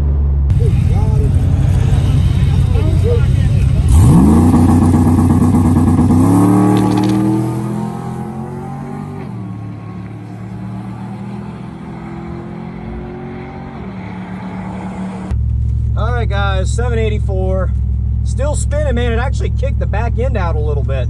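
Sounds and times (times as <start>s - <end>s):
truck engine revving at full throttle: 0.0s - 15.4s.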